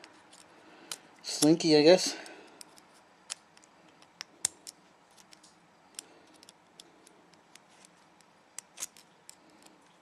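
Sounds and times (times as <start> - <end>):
small sharp metallic clicks: 2.5 - 9.9.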